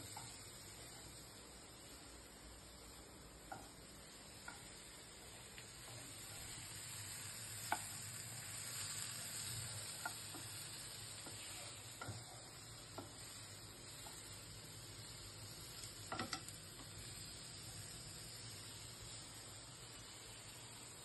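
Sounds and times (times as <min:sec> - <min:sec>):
vegetables sizzling in a pan: 0:00.0 - 0:21.0
spatula knocking against pan: 0:03.5 - 0:03.7.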